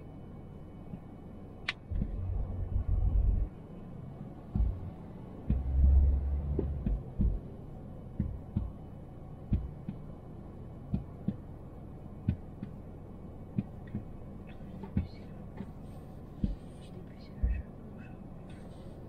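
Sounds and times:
road rumble: 0:00.0 - 0:19.0
dull thumps: 0:04.5 - 0:04.9, 0:06.5 - 0:07.4.

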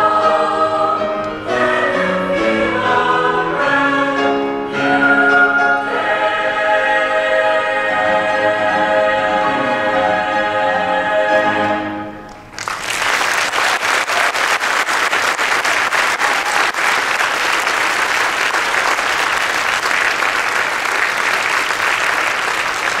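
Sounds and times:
choir holding a chord: 0:00.0 - 0:12.3
audience applause: 0:12.5 - 0:23.0.

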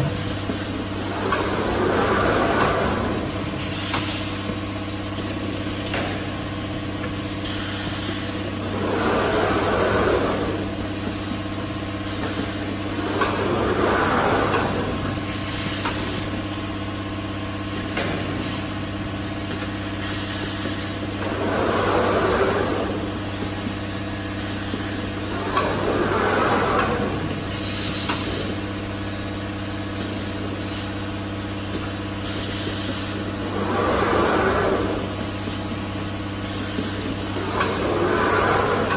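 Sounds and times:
low machine hum: 0:00.0 - 0:38.9
pneumatic gripper air hisses: 0:07.4 - 0:16.6, 0:17.6 - 0:28.7, 0:29.9 - 0:38.9.

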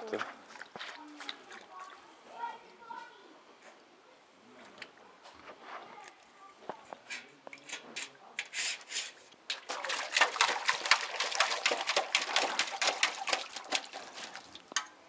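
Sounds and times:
puppy splashing in metal bowl: 0:00.0 - 0:02.0, 0:07.5 - 0:15.0.

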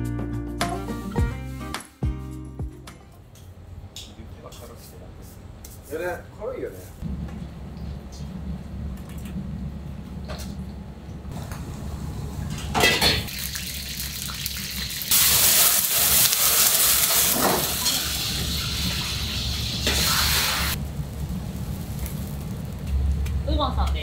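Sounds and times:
steady low hum: 0:06.9 - 0:13.2.

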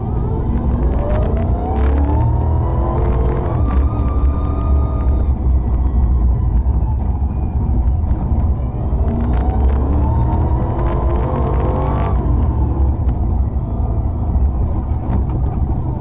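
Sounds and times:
race car engine revving: 0:00.0 - 0:05.6, 0:08.2 - 0:14.5.

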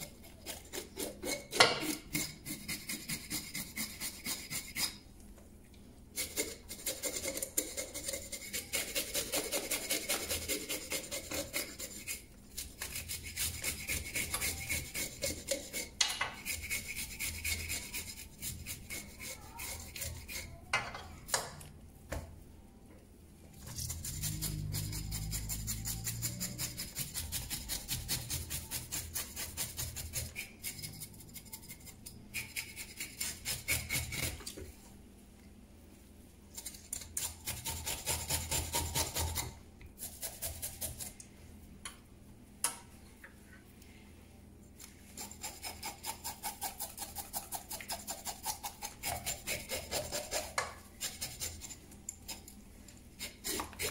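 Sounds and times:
blade scraping fish scales: 0:23.7 - 0:34.4.

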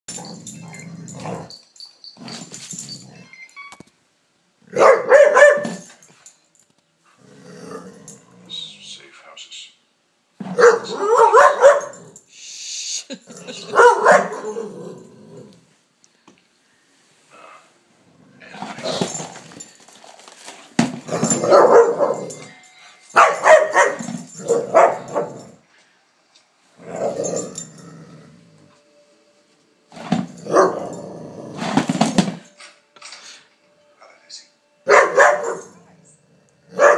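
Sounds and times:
dog barking and growling: 0:00.1 - 0:01.6, 0:04.6 - 0:06.1, 0:10.4 - 0:12.2, 0:13.1 - 0:15.7, 0:17.3 - 0:19.6, 0:21.0 - 0:22.5, 0:23.2 - 0:25.6, 0:26.8 - 0:28.7, 0:30.2 - 0:32.2, 0:34.9 - 0:36.9
dog barking: 0:04.7 - 0:05.9, 0:10.5 - 0:12.1, 0:13.6 - 0:14.7, 0:21.2 - 0:22.4, 0:23.2 - 0:25.6, 0:30.5 - 0:31.0, 0:34.9 - 0:35.8
dog play-growling: 0:07.1 - 0:08.5, 0:14.4 - 0:15.7, 0:18.2 - 0:19.6, 0:26.8 - 0:28.8.

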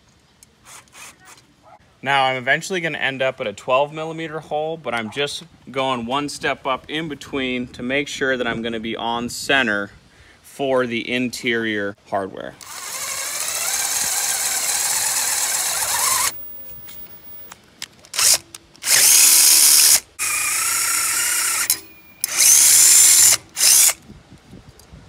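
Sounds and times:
cordless drill drilling metal: 0:00.6 - 0:01.4, 0:12.6 - 0:24.0.

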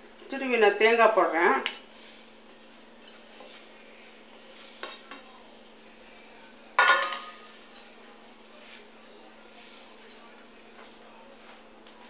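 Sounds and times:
steel dishes clinking: 0:06.8 - 0:08.0.

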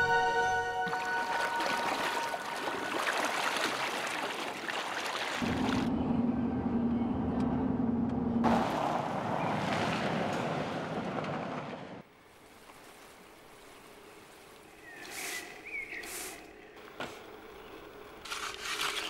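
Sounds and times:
vehicle engine hum: 0:05.4 - 0:12.1, 0:13.2 - 0:19.0
faint forest ambience: 0:11.6 - 0:19.0.

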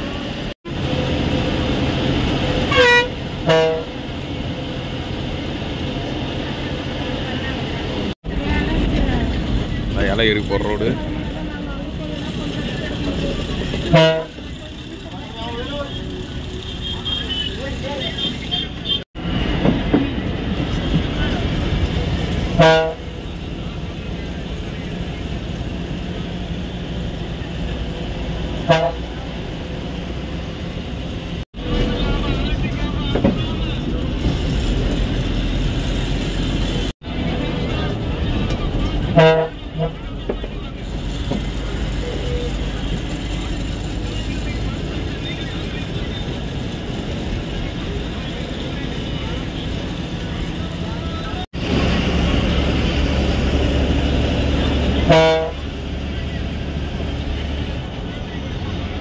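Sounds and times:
bus engine and road noise: 0:00.0 - 0:59.0
bus horn blasts: 0:02.6 - 0:04.1, 0:13.8 - 0:14.9, 0:15.5 - 0:19.0, 0:22.5 - 0:23.3, 0:28.6 - 0:29.3, 0:39.0 - 0:40.1, 0:54.8 - 0:55.8.

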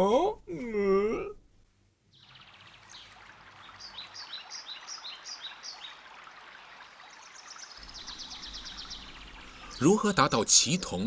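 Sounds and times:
running water: 0:02.2 - 0:11.0
bird trill: 0:07.8 - 0:10.9.

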